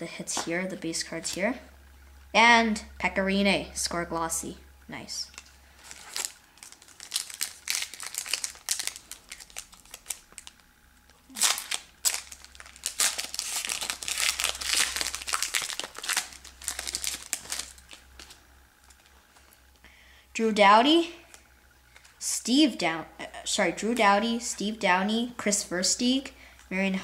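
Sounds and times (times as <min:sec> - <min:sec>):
wrapper crinkling: 0:05.2 - 0:19.5.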